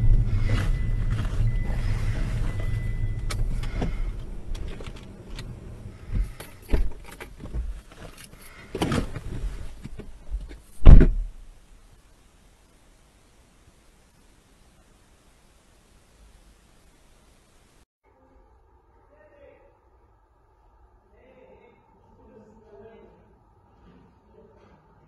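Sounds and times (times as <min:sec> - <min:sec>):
car road and engine rumble: 0:00.0 - 0:11.7
car door thud: 0:10.8 - 0:11.3.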